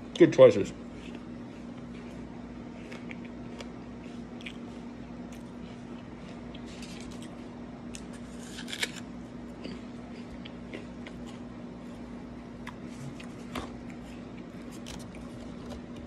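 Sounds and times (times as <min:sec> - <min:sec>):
apple being chewed: 0:00.1 - 0:16.0
crunch or handling sound: 0:05.3 - 0:09.8.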